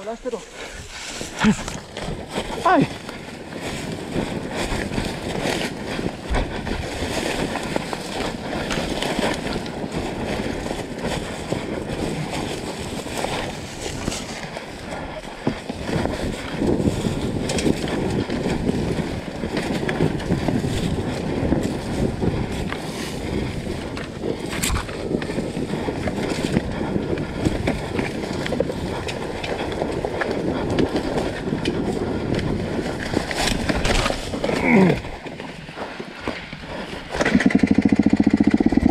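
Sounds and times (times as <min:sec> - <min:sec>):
wind buffeting microphone: 0:00.0 - 0:38.9
dirt bike engine running: 0:01.2 - 0:38.9.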